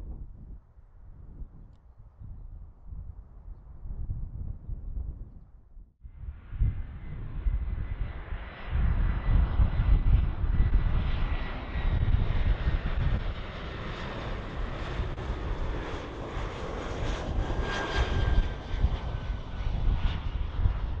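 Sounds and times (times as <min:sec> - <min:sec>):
jet engines passing: 0:06.4 - 0:21.0.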